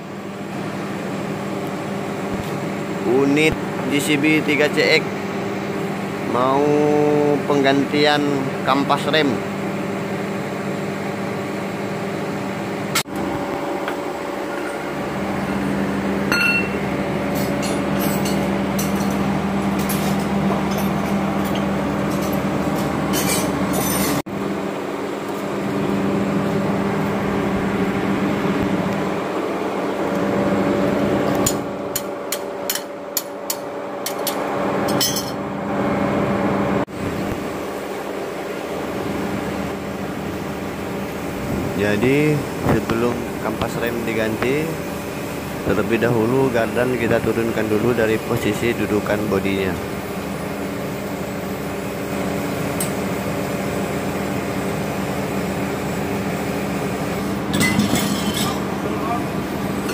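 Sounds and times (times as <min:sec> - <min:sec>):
steady mechanical hum: 0:00.0 - 0:59.9
hand tools clinking on metal: 0:57.5 - 0:58.7.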